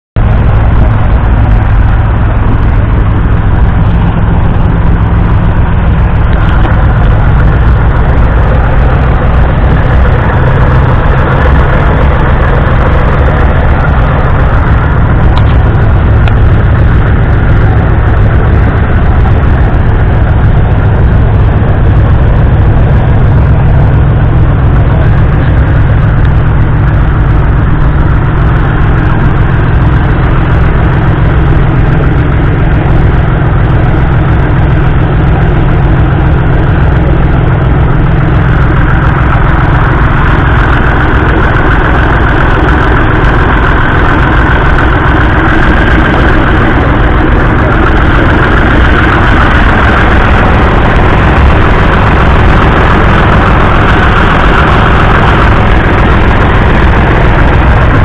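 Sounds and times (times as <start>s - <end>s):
diesel tractor engine idling: 0.0s - 58.0s.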